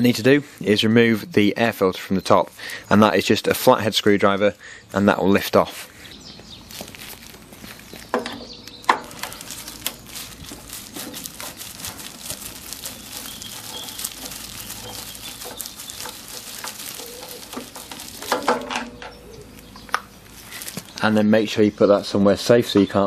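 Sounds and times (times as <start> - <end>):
plastic cover knocks: 17.0 - 19.0.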